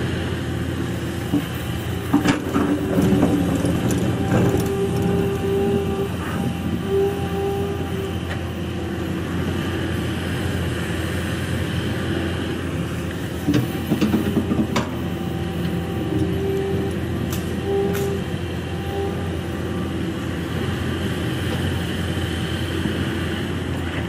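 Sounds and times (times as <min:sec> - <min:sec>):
excavator diesel engine: 0:00.0 - 0:24.0
hydraulic whine: 0:01.1 - 0:24.0
bucket scraping earth and stones: 0:02.2 - 0:05.2.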